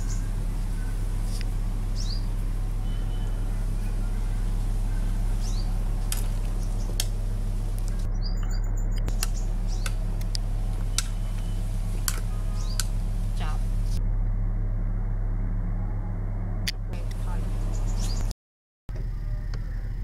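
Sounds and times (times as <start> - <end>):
bird chirps: 0.0 - 13.5, 17.3 - 18.3
steady low hum: 0.0 - 18.3.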